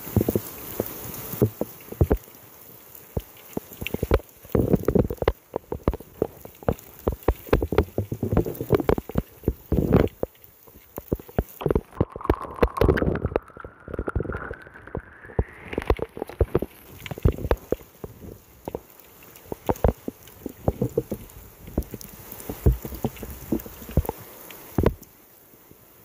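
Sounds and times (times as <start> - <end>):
rain tapping on microphone: 0.0 - 26.0
wind buffeting: 11.9 - 17.6
faint rising tone: 12.0 - 16.4.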